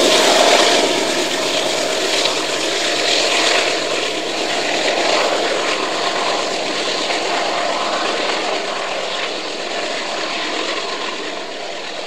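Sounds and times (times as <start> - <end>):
train wheels on rail: 0.0 - 5.6
diesel locomotive receding: 0.0 - 6.6.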